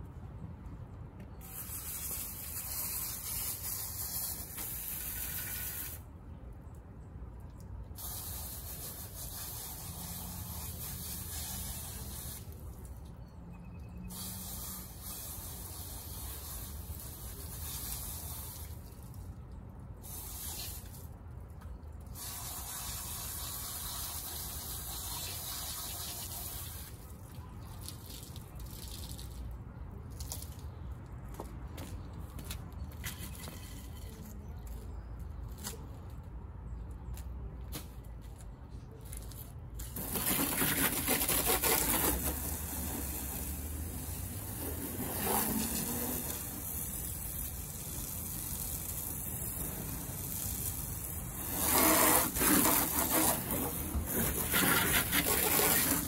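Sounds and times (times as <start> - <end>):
water spraying on car: 1.4 - 6.1, 7.9 - 13.1, 14.1 - 21.2, 21.9 - 30.7, 39.8 - 56.0.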